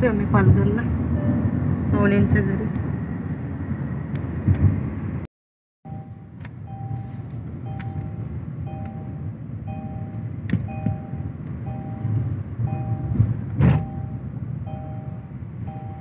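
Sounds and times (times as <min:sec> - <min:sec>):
road rumble in a car: 0:00.0 - 0:05.3, 0:05.9 - 0:16.0
electronic two-tone beep: 0:05.9 - 0:16.0.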